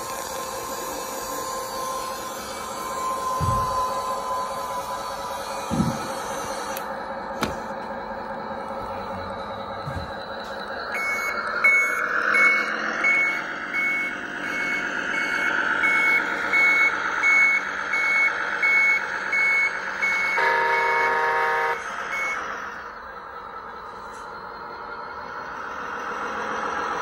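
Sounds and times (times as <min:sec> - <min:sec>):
diesel truck engine sound: 0:00.0 - 0:27.0
reversing beeper: 0:00.0 - 0:27.0
horn blast: 0:20.4 - 0:21.8.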